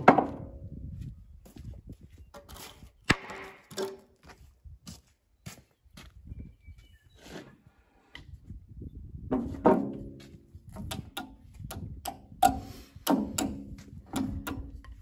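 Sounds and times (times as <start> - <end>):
hammer striking nails in wood: 12.0 - 14.7.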